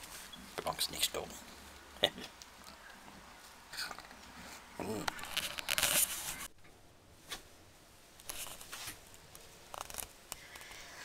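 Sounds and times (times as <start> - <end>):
camera handling rustles: 5.1 - 6.5.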